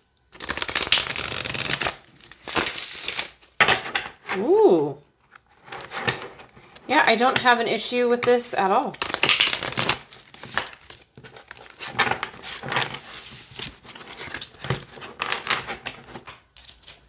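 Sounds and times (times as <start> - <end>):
cards being shuffled: 0.4 - 3.4, 8.9 - 17.0.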